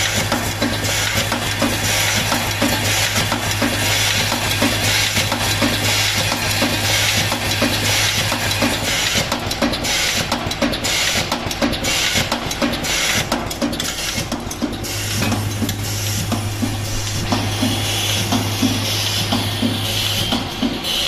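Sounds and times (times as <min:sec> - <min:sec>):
vibratory bowl feeder buzzing: 0:14.0 - 0:21.0.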